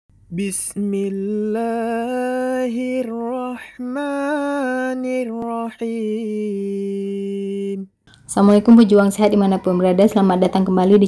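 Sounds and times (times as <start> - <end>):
wordless voice singing long notes: 0.2 - 8.1.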